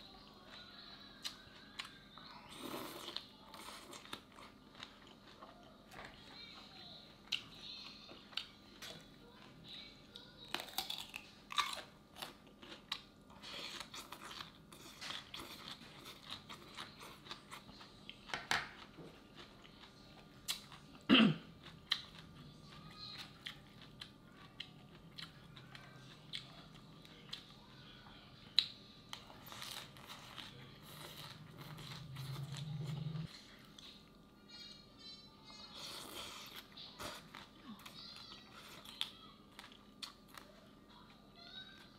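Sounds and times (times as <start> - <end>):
person chewing crunchy salad: 1.2 - 6.2, 10.5 - 27.6, 28.6 - 34.0, 35.7 - 40.6.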